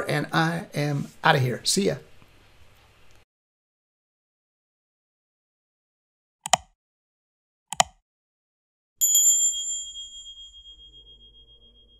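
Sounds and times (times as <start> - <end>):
mouse clicks: 6.4 - 6.7, 7.7 - 8.0
bell-like notification ding: 9.0 - 11.9.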